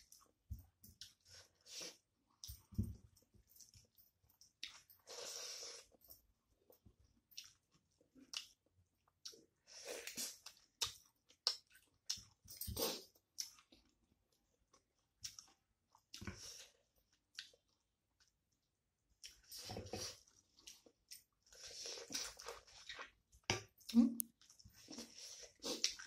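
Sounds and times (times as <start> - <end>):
person chewing food: 0.0 - 26.0.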